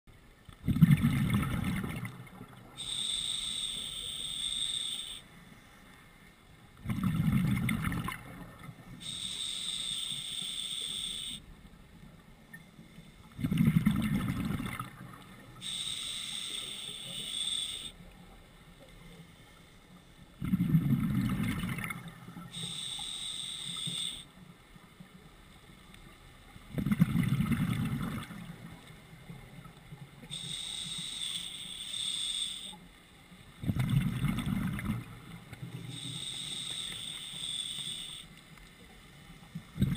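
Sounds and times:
exhaled bubbles rushing: 0.6s - 2.6s, 6.8s - 8.4s, 13.4s - 15.1s, 20.4s - 22.1s, 26.7s - 28.6s, 33.6s - 35.2s
regulator hiss on inhale: 2.8s - 6.1s, 8.9s - 11.5s, 15.6s - 18.2s, 22.4s - 24.4s, 30.2s - 32.9s, 35.8s - 38.5s.

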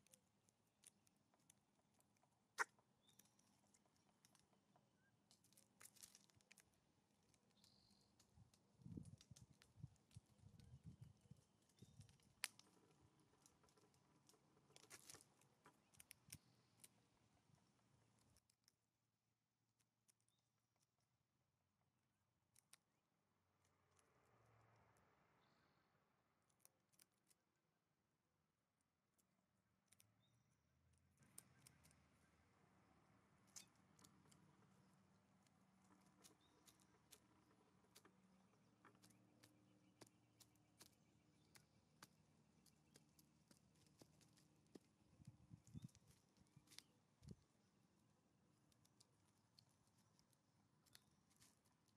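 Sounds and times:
bird bill pecking on wood: 31.2s - 32.1s, 33.4s - 51.9s.

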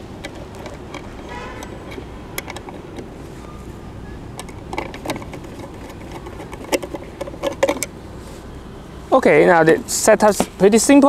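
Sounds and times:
screwdriver clicks and taps: 0.2s - 3.1s, 4.4s - 7.9s.

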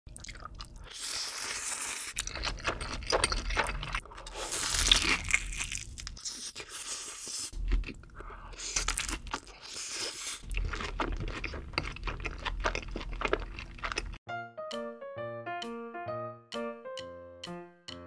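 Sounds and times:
biting and chewing: 0.1s - 14.2s
slurping noodles: 0.7s - 5.3s.

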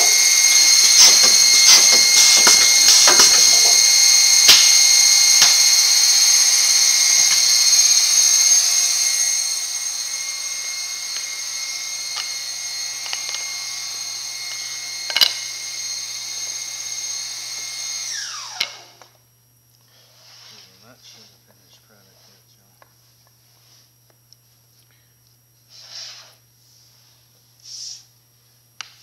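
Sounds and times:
machine spindle whining: 0.0s - 18.9s.

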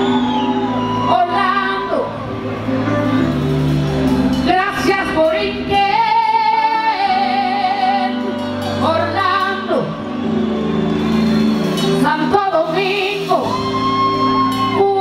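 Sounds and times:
woman singing: 1.0s - 2.3s, 4.4s - 10.1s, 12.0s - 15.0s
live salsa band: 10.3s - 15.0s.

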